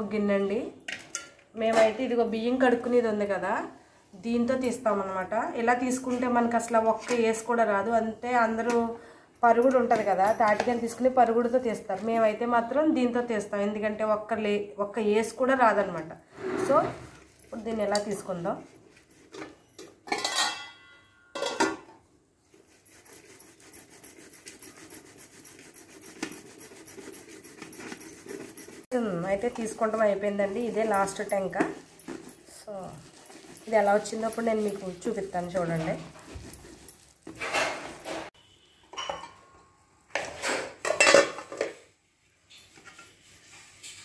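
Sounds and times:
fruit rasping on metal bowl: 16.6 - 19.6, 22.6 - 38.3
metal kitchen vessels clattering: 19.4 - 22.0, 37.2 - 41.9.

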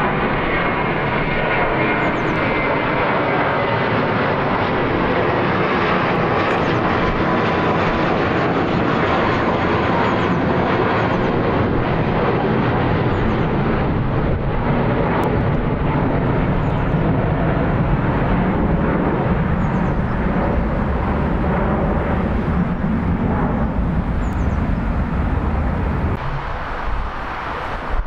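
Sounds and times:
jet engine rumble: 0.0 - 28.0.

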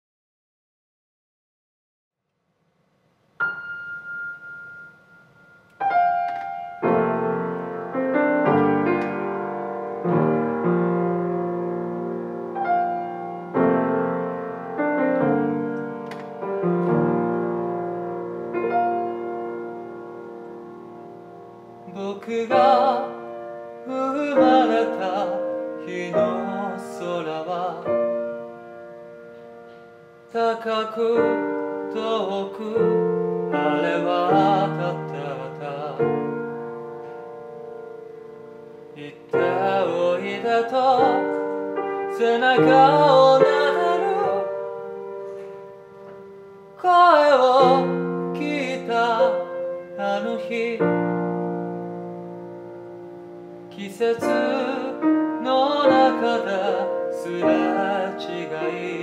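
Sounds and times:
grand piano: 3.0 - 59.0
man singing: 21.8 - 28.5, 30.3 - 36.6, 38.9 - 44.9, 46.8 - 51.5, 53.7 - 59.0.

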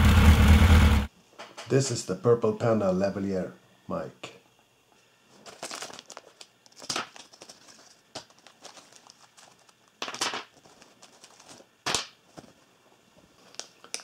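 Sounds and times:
cloth pouch rustling: 5.4 - 9.9
plastic bags crinkling: 5.4 - 11.7.

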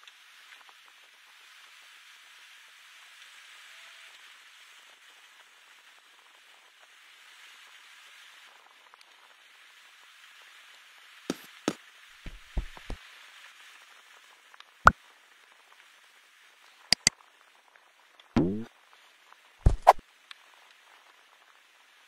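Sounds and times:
faint steady hiss: 0.0 - 22.0
sharp clicks and knocks: 12.3 - 13.0
mouse click sound effect: 18.4 - 18.7, 19.7 - 20.0
short falling pitch sound: 18.4 - 18.7.

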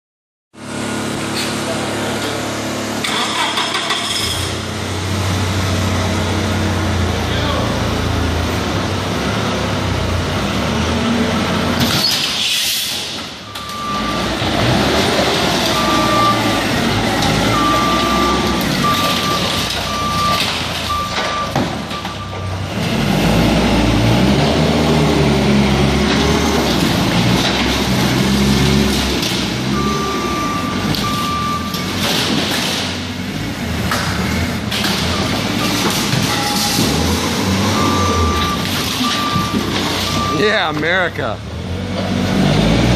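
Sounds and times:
forklift engine revving: 0.6 - 42.9
backup alarm beeping: 13.5 - 14.4, 15.6 - 22.6, 29.6 - 32.0, 35.0 - 41.2.

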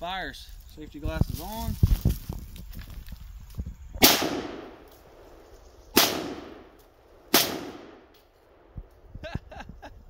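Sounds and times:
rifle shots echoing: 4.0 - 5.2, 6.0 - 8.7.

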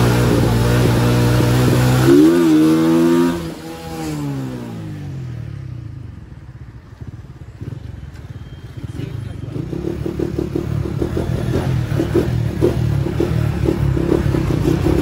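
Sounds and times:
small motorcycle engine revving: 0.0 - 5.0.

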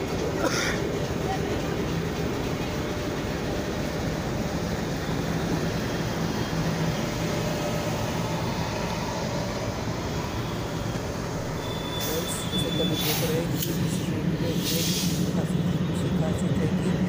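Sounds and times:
diesel locomotive idling: 0.0 - 17.0.

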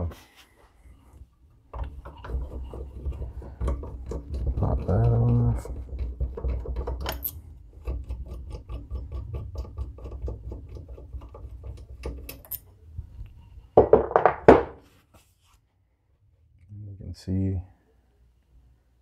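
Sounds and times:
light metallic clicks and rattles: 6.4 - 8.0.

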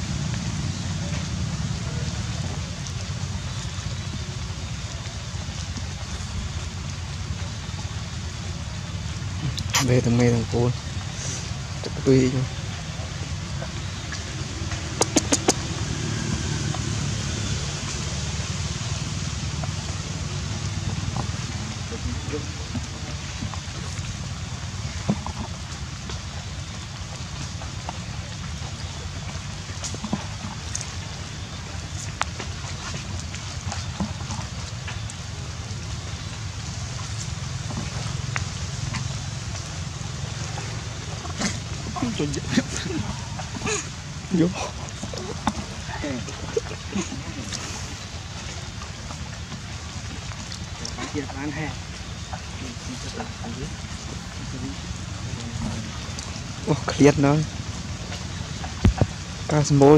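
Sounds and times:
low background rumble: 0.0 - 59.9.

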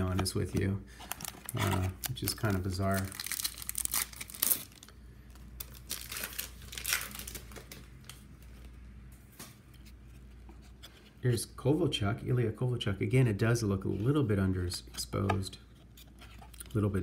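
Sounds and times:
plastic wrapper crinkling: 0.0 - 8.2.

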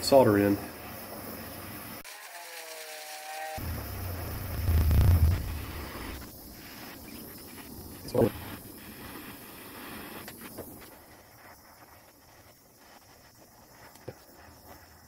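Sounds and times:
gas torch hissing: 3.6 - 15.0.

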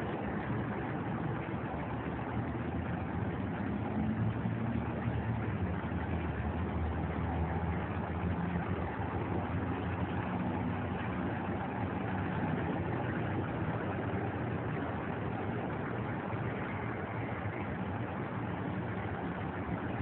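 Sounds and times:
city traffic rumble: 0.0 - 20.0.

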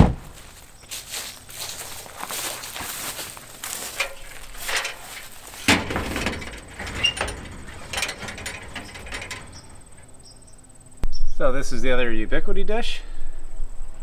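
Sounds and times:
feet climbing metal ladder: 1.0 - 10.5.

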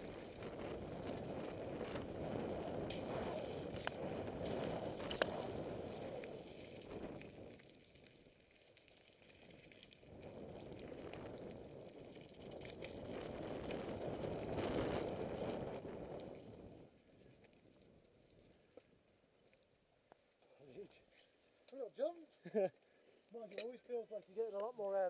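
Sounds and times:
bike rattling: 0.0 - 19.7
bike tyres rushing on gravel: 0.0 - 19.8.

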